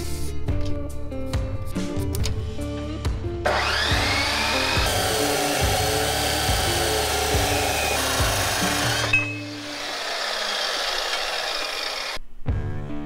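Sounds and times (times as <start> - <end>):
background music with steady beat: 0.0 - 9.6, 12.2 - 13.0
chop saw grinding through steel: 3.5 - 12.2.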